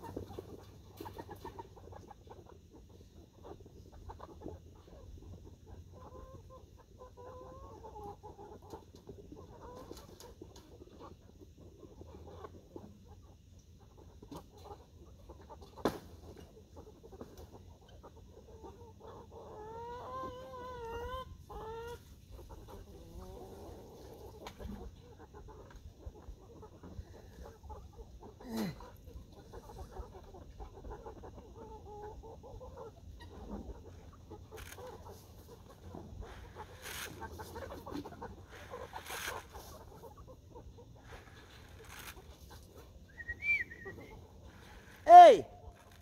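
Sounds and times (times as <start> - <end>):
chickens clucking: 0.0 - 46.0
long wavering chicken call: 43.1 - 46.0.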